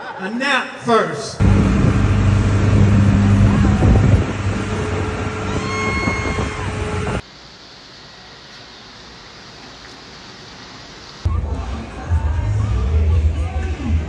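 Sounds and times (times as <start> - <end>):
vehicle running hum: 1.4 - 7.2
faint hiss: 7.2 - 11.2.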